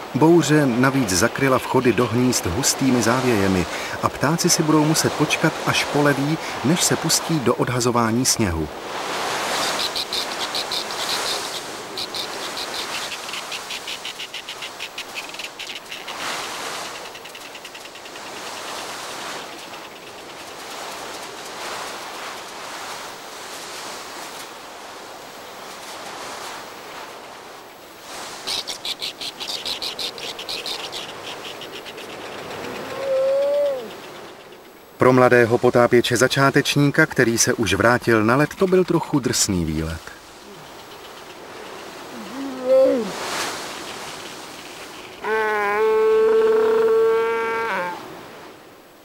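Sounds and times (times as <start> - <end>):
birds chattering calls: 9.4 - 21.5, 28.4 - 46.0.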